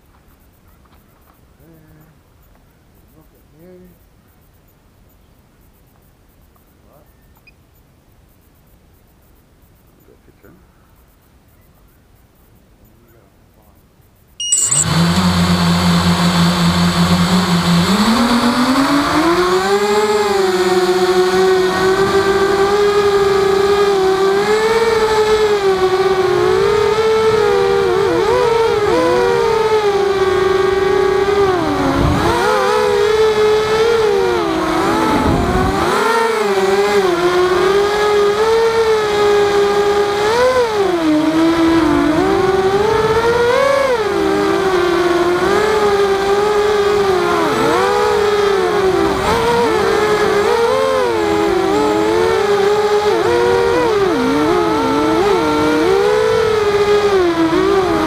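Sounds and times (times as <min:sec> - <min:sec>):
quadcopter motors whining: 0:14.4 - 0:58.0.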